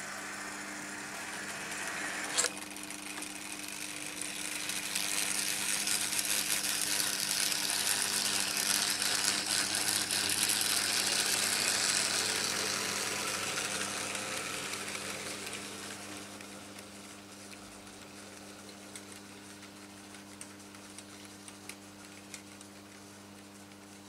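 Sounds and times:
steady electrical hum: 0.0 - 24.0
model train wheels rattling on rails: 3.1 - 16.1.

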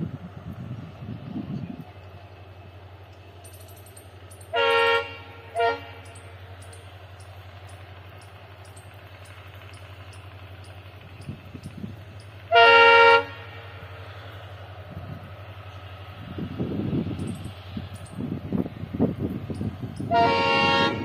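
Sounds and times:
train horn blasts: 4.5 - 6.4, 12.5 - 14.0, 20.0 - 21.0.

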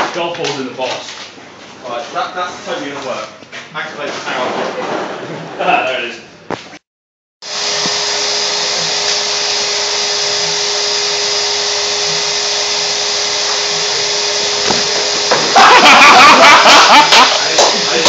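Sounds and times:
vacuum cleaner running: 7.4 - 18.0.

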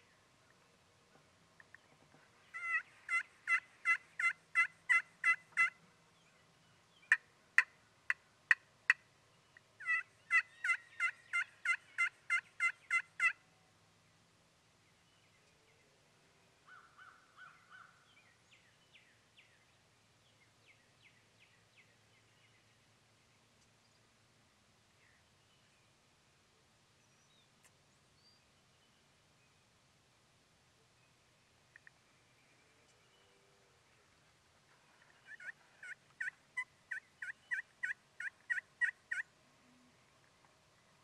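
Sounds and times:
turkey cutts: 1.6 - 5.8, 9.6 - 13.4, 34.7 - 39.3
turkey yelps: 2.5 - 5.8, 9.8 - 13.4, 35.2 - 39.3.

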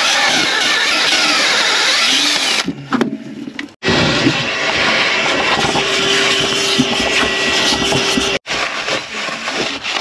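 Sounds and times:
power drill boring: 0.0 - 2.7, 3.8 - 8.4.

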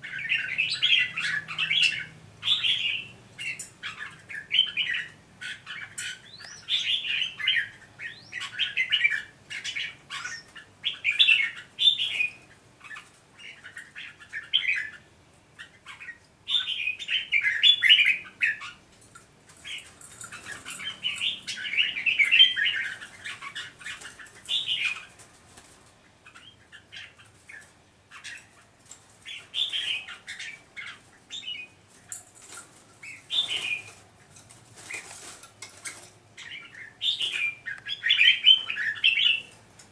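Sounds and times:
birds chattering calls: 0.0 - 39.9
wings fluttering against cages: 18.8 - 26.4, 27.0 - 39.9.

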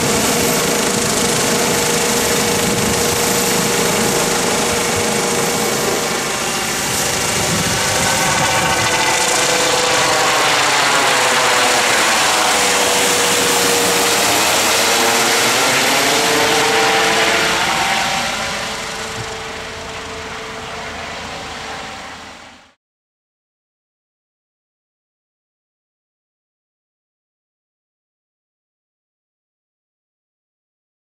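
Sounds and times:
helicopter flying overhead: 0.0 - 22.8.

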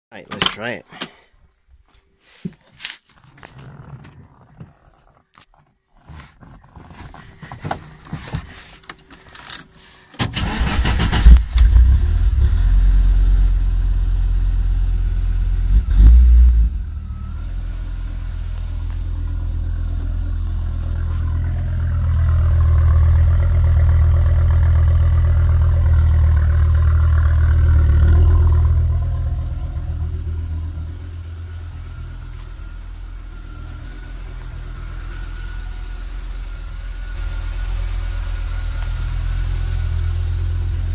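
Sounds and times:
car engine starting and revving: 10.2 - 40.9
car engine idling: 16.7 - 40.9.

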